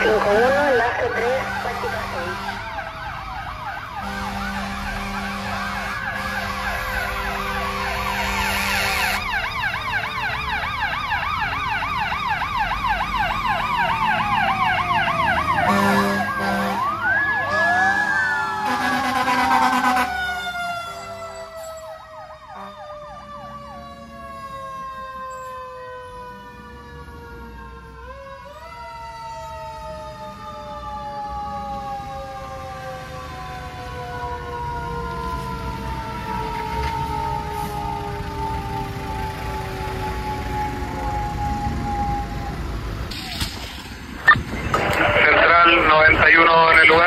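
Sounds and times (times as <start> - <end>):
fire engine sirens wailing: 0.0 - 47.0
horn blasts: 1.2 - 2.7, 4.0 - 9.2, 15.7 - 16.9.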